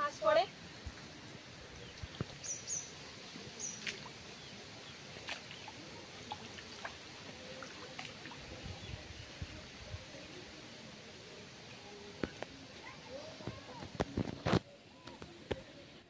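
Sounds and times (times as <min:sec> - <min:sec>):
water splashing and sloshing: 0:00.2 - 0:09.4.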